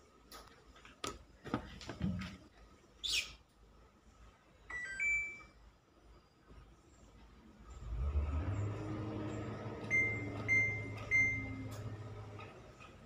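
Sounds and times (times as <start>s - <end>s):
washing machine electronic chime: 4.7s - 5.6s, 9.6s - 12.3s.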